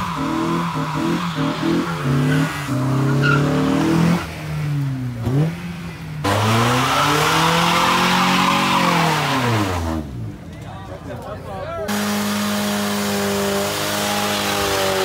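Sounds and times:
tyres squealing and hissing: 0.0s - 3.8s, 6.5s - 9.8s
car engines revving hard: 0.0s - 10.6s, 11.9s - 15.0s.

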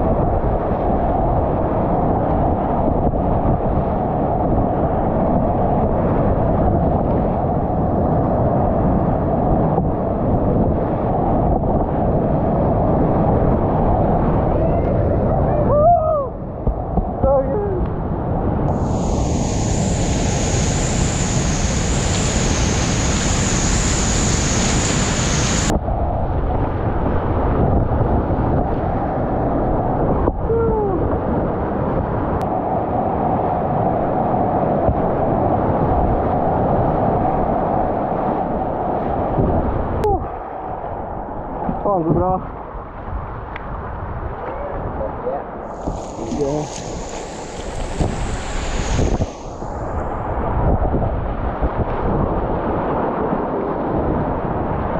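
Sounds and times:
whitewater rapids rushing: 18.8s - 25.7s.

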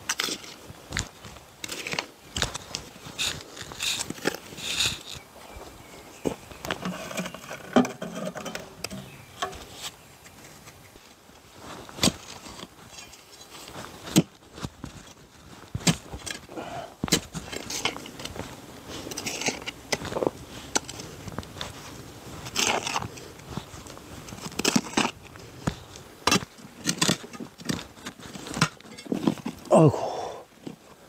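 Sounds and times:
dirt scraping and crunching: 0.0s - 31.0s
hand tool striking soil: 11.9s - 13.3s, 14.1s - 14.4s, 15.7s - 16.4s, 17.0s - 18.3s, 24.3s - 29.6s.

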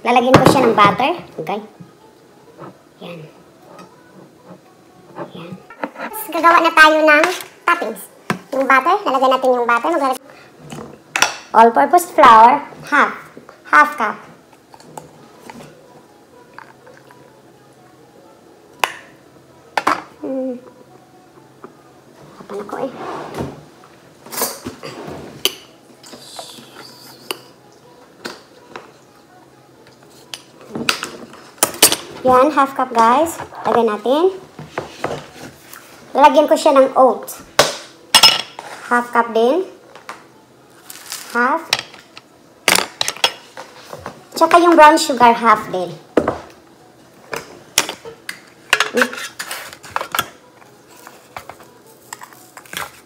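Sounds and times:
kitchen utensils knocking and clinking: 30.7s - 33.9s, 37.6s - 38.6s, 47.3s - 50.4s.

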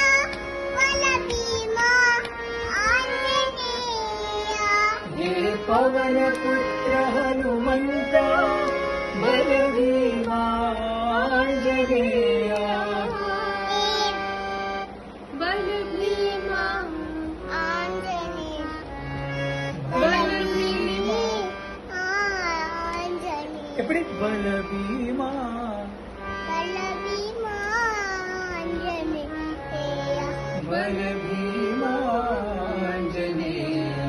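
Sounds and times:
girl singing: 0.0s - 5.1s, 13.0s - 14.6s, 15.5s - 19.2s, 19.9s - 23.9s, 26.4s - 30.6s.

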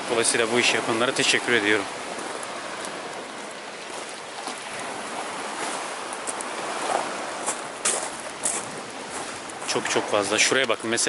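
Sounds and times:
sea waves washing over rocks: 0.0s - 11.0s
faint clicks: 2.2s - 3.6s.

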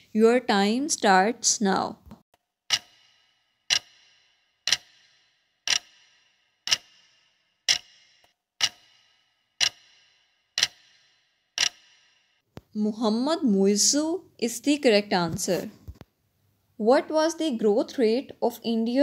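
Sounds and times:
clock ticking with ringing tail: 2.7s - 12.5s.

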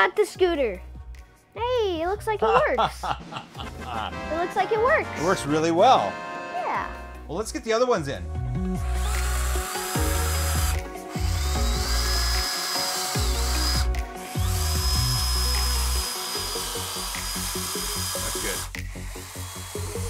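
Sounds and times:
cordless drill driving screws: 8.8s - 20.0s.

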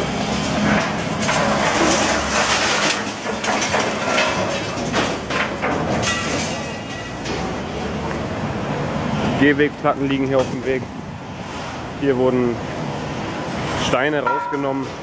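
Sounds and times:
rubble crashing into metal bin: 0.4s - 7.4s.

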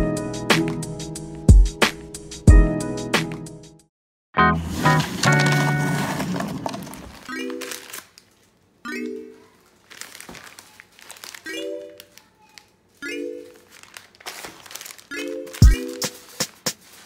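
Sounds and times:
paper crinkling: 4.9s - 8.6s, 9.5s - 17.0s
calm hip-hop music: 15.6s - 16.9s.

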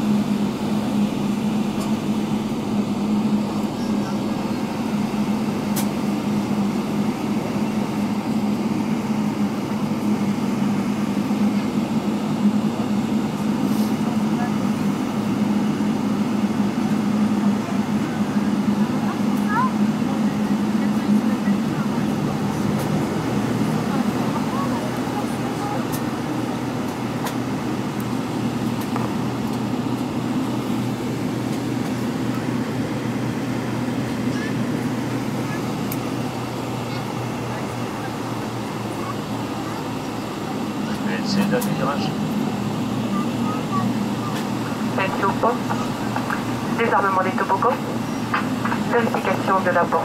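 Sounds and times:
air-conditioning: 0.0s - 50.0s
jet engines humming: 0.0s - 50.0s.

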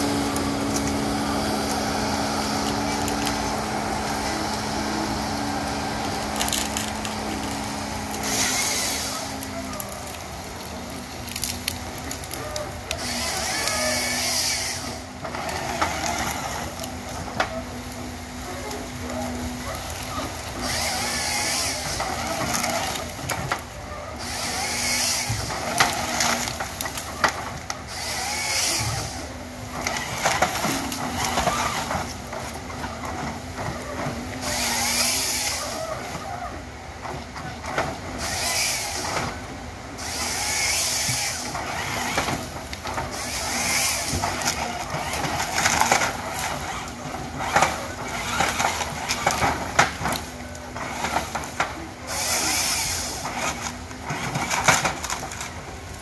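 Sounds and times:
harvester head cutting log: 0.0s - 9.9s, 19.9s - 23.6s, 24.2s - 36.0s, 40.0s - 55.6s
harvester engine droning: 0.0s - 56.0s.

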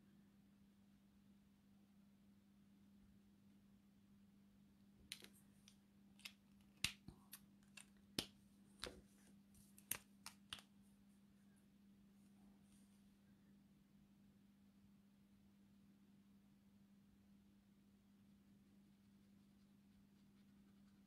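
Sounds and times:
faint steady hum: 0.0s - 21.0s
plastic marker caps clicking: 5.1s - 9.0s, 9.8s - 10.7s.

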